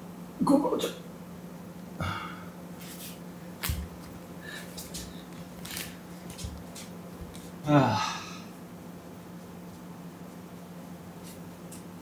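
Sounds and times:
faint steady hum: 0.0s - 12.0s
rustling on exercise mat: 2.8s - 7.6s.

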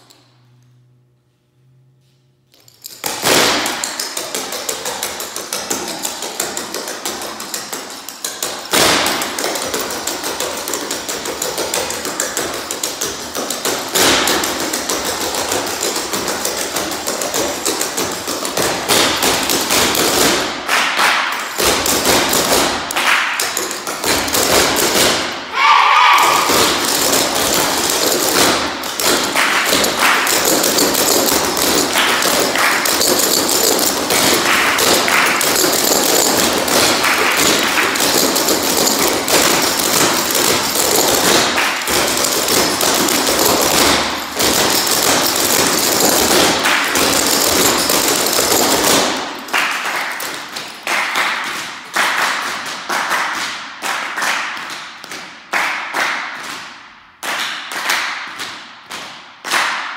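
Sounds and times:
hand claps: 16.5s - 25.3s, 26.2s - 59.9s.

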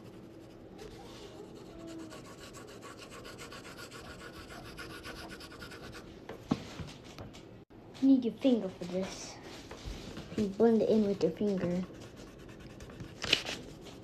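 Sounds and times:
pencil scratching on paper: 1.4s - 6.1s, 11.6s - 13.3s.

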